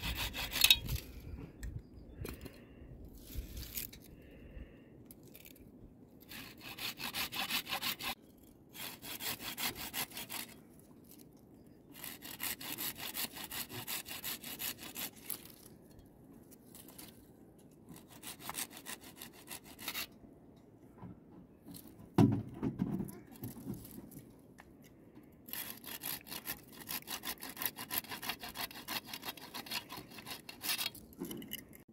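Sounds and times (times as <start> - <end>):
handsaw cutting wood: 0.0 - 0.9, 6.2 - 10.5, 11.9 - 15.4, 17.9 - 20.1, 25.5 - 31.0.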